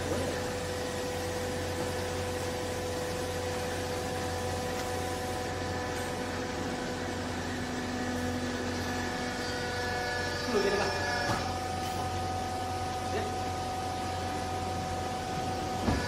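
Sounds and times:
baler motor and hydraulic pump hum: 0:00.0 - 0:16.0.

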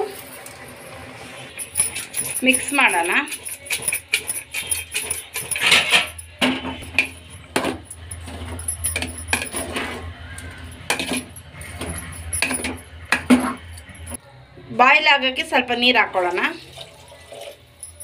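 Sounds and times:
metal spoon scraping a pot: 0:01.4 - 0:14.2.

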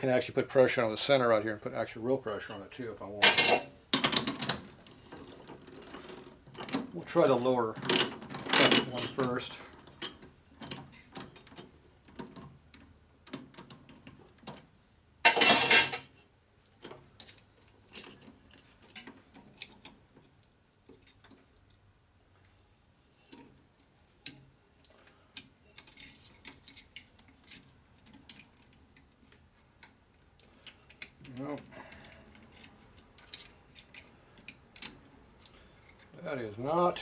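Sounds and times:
metal clicks of hand tools: 0:23.3 - 0:36.1.

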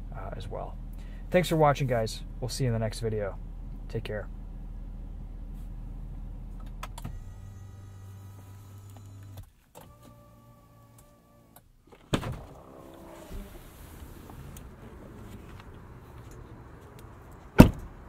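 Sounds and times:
small electric motor whining: 0:07.1 - 0:11.6.

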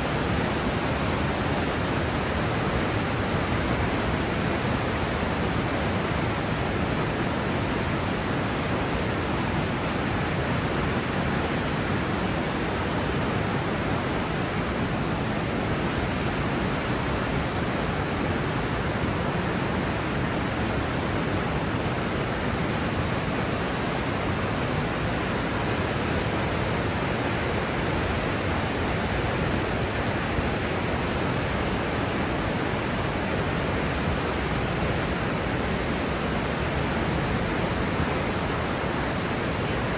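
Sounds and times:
whitewater rapids rushing: 0:00.0 - 0:39.9.

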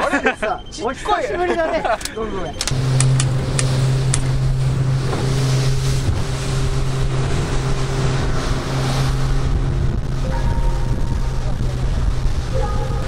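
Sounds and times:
boat engine droning: 0:00.0 - 0:13.0
water rushing past: 0:02.7 - 0:13.0
wind on microphone: 0:02.7 - 0:13.0.

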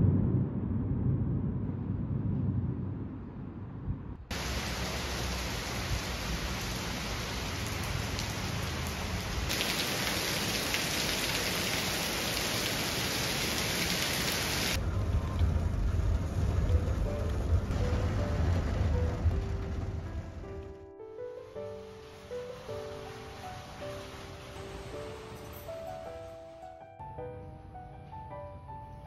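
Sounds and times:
low rumble: 0:00.0 - 0:06.8, 0:14.8 - 0:20.9
heavy rain on pavement: 0:04.3 - 0:20.4, 0:21.8 - 0:25.6
rain heard inside a car: 0:04.3 - 0:20.4, 0:22.0 - 0:25.3.

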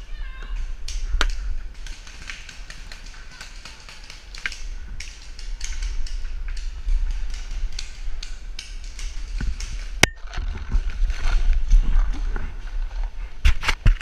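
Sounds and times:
steady low rumble: 0:00.0 - 0:13.5
paintball guns firing: 0:00.5 - 0:10.2.

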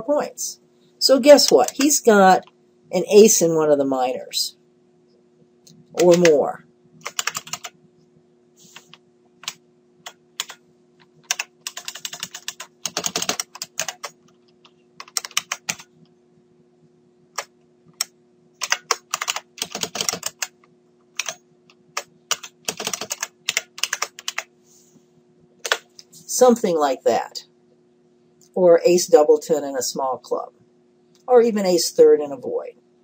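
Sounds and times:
faint low hum: 0:00.0 - 0:33.0
typing on computer keyboard: 0:06.0 - 0:06.3, 0:07.0 - 0:07.7, 0:08.8 - 0:10.6, 0:11.2 - 0:15.9, 0:17.4 - 0:20.6, 0:21.2 - 0:21.4, 0:22.0 - 0:24.5.

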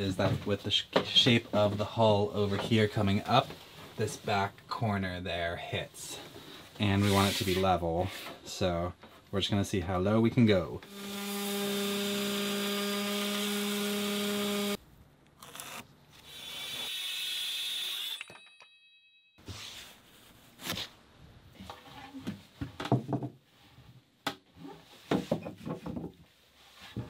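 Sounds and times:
circular saw cutting wood: 0:10.9 - 0:14.8.

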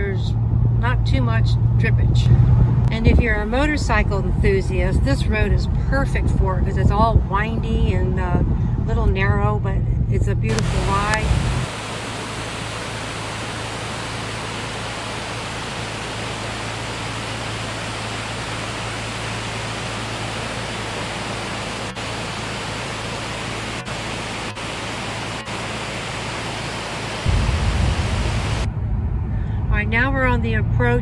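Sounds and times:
waterfall rushing: 0:10.6 - 0:28.7.

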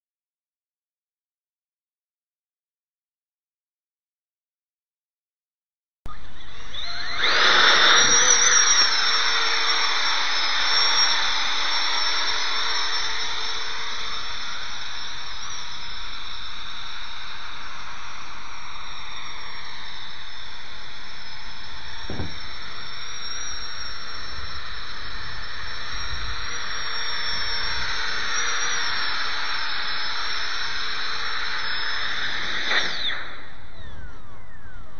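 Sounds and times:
rc helicopter motor whine: 0:06.1 - 0:34.9
low thump: 0:22.1 - 0:22.4.

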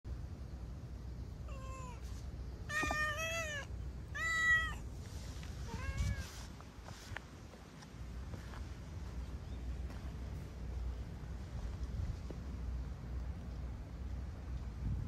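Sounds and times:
cat meowing: 0:01.5 - 0:02.0, 0:02.7 - 0:04.8, 0:05.6 - 0:06.4.

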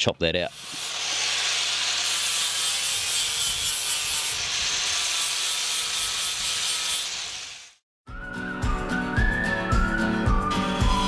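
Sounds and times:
table saw cutting aluminium: 0:00.5 - 0:07.8.

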